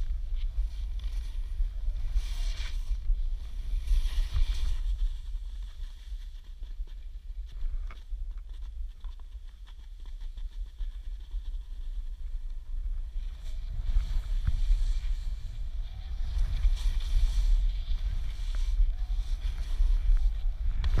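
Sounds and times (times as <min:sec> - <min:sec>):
wind rumbling on microphone: 0:00.0 - 0:21.0
skis sliding over snow: 0:00.6 - 0:07.8, 0:13.2 - 0:21.0.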